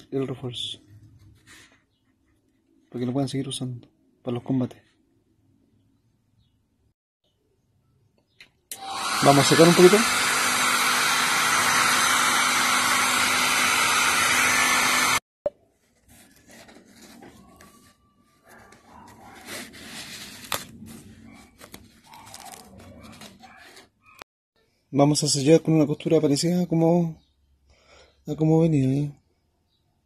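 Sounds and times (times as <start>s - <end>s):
hot-air dryer blowing: 8.7s - 15.2s.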